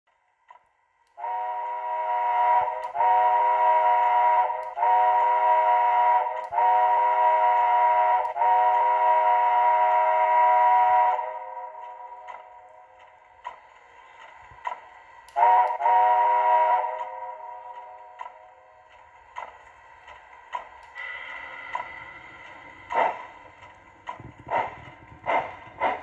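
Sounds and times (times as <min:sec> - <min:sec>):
steam whistle from small speaker: 0:01.2 - 0:11.5, 0:15.4 - 0:17.4.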